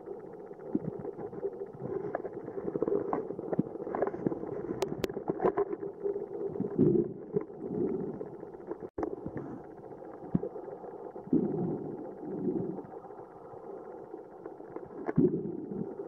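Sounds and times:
muffled underwater rumble: 0.0 - 16.0
clicks and crackles: 0.1 - 10.7, 14.3 - 15.4.

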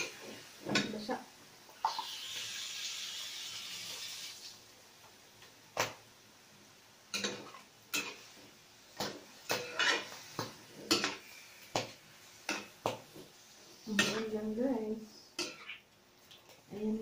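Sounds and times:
hiss: 1.8 - 4.5
metal spatula scraping wok: 9.5 - 11.3, 15.4 - 15.8.

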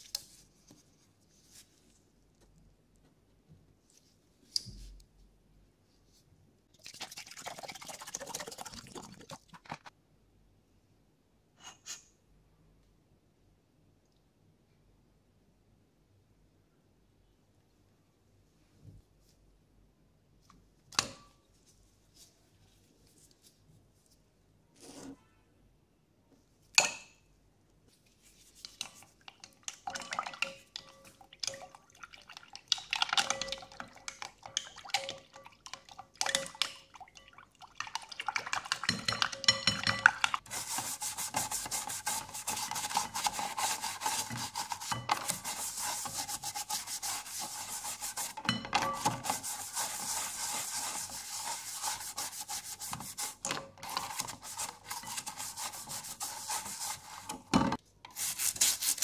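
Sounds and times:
toothbrush scrubbing plastic casing: 40.2 - 57.3.

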